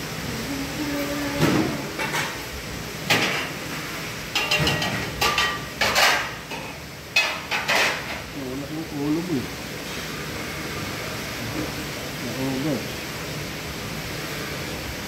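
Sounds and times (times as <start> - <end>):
metal utensil clinking on pan: 4.3 - 8.1.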